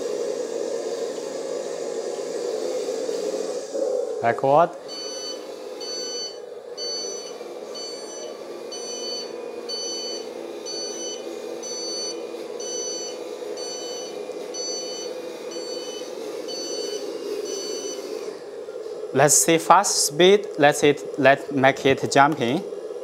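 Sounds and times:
reversing warning beeper: 4.8 - 18.3.

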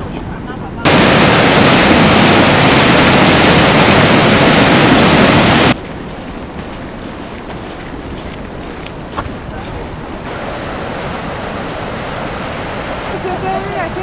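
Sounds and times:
waterfall rushing: 0.9 - 5.8, 10.3 - 14.0.

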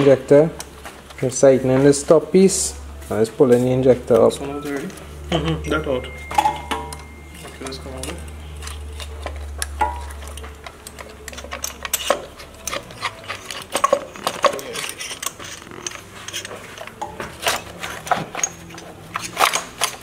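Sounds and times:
low hum: 4.0 - 11.8.

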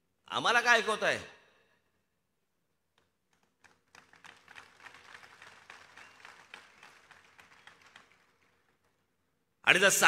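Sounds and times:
crowd applauding: 3.4 - 9.1.

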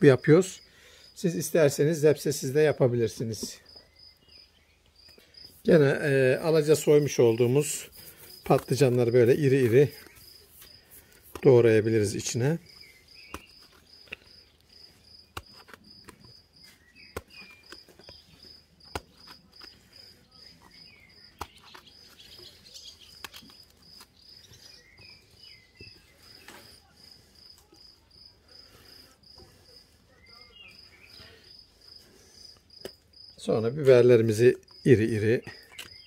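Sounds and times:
knife cutting eggplant: 12.8 - 24.2.

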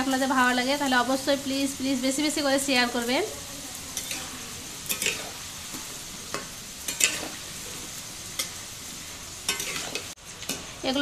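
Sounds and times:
potatoes sizzling in hot oil: 0.0 - 11.0
metal spatula scraping pan: 3.9 - 7.5, 9.4 - 10.6.

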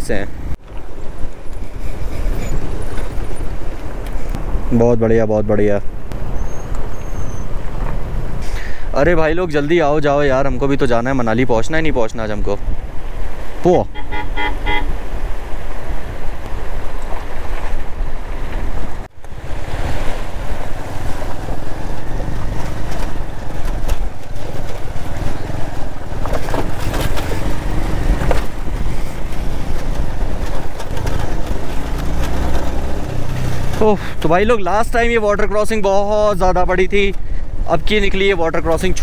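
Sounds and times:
tyres splashing through water: 12.8 - 34.4
wind buffeting microphone: 14.3 - 34.1
motorcycle engine running: 20.6 - 34.2.

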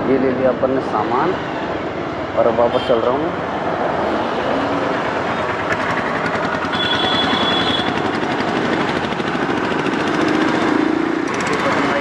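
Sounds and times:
motorcycle engine accelerating: 4.8 - 12.0.

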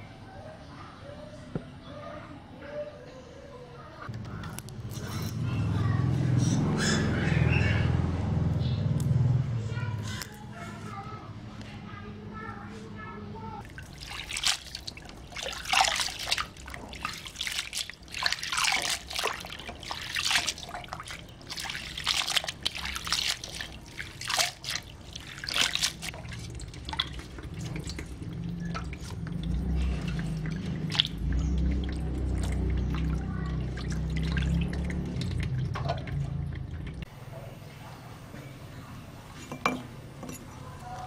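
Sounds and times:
hands splashing in water: 13.6 - 36.1.

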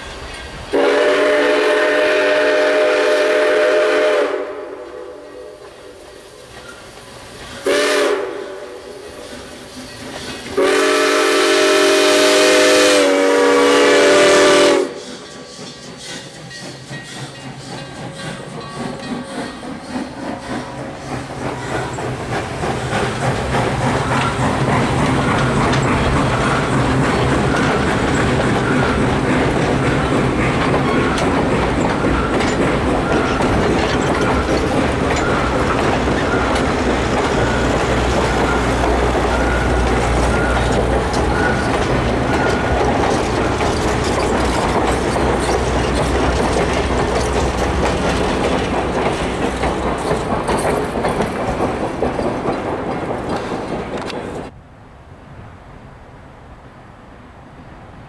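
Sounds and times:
train wheels clacking on rails: 0.0 - 54.6
steam whistle blast: 0.7 - 5.7, 7.6 - 9.0, 10.6 - 15.2.

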